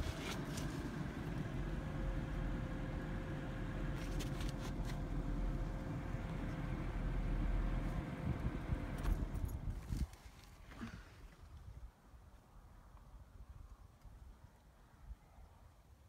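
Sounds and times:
vehicle engine rumbling: 0.0 - 11.8.

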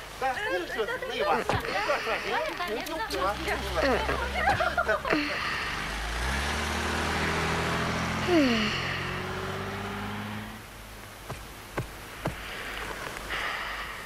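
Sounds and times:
vehicle engine hum: 1.5 - 13.3.

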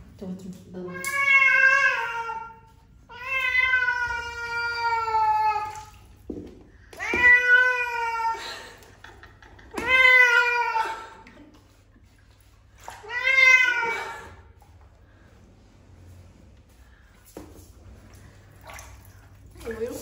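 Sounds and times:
cat meowing loudly: 9.8 - 10.9, 13.0 - 14.1.

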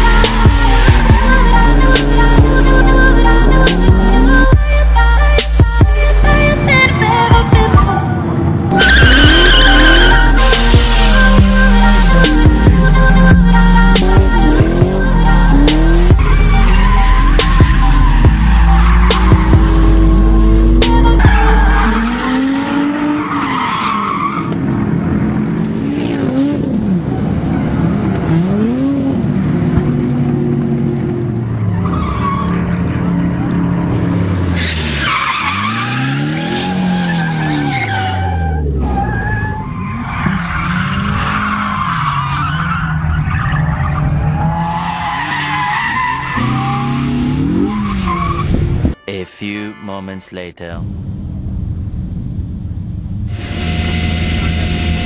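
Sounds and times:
car engines revving: 0.0 - 49.0
tyres squealing: 8.7 - 15.0.

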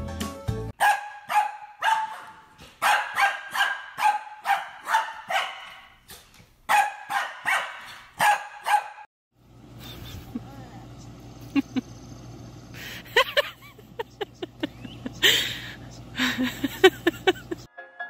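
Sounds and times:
small dog barking: 0.8 - 6.0, 6.7 - 9.1.

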